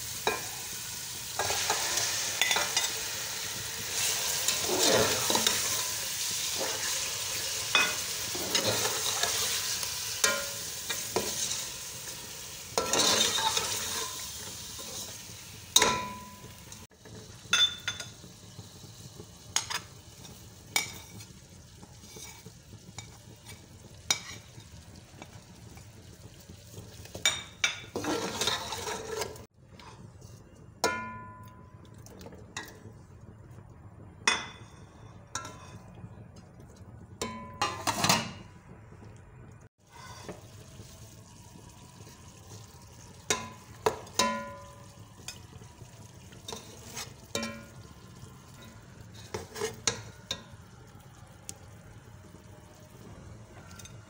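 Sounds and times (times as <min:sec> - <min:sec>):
faint frying sizzle: 0:00.0 - 0:54.0
metal spoon scraping pot: 0:04.0 - 0:05.8, 0:12.8 - 0:14.2, 0:27.9 - 0:30.0, 0:46.5 - 0:47.8, 0:49.1 - 0:50.4.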